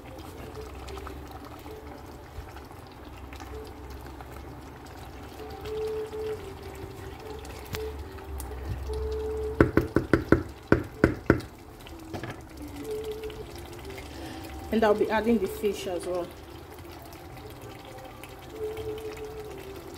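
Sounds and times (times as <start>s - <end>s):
spatula knocking against pot: 9.6s - 11.5s.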